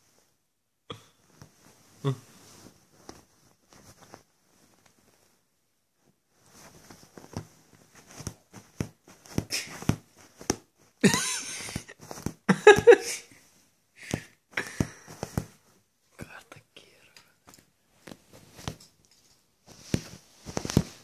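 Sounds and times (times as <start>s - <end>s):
fur rustling against phone: 1.2s - 13.8s, 17.9s - 21.0s.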